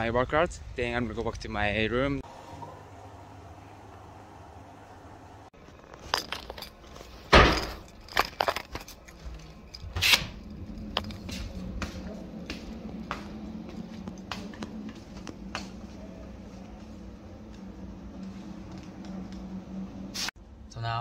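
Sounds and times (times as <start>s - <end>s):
door thudding shut: 7.3s - 7.8s
footsteps on hard floor: 11.1s - 19.4s.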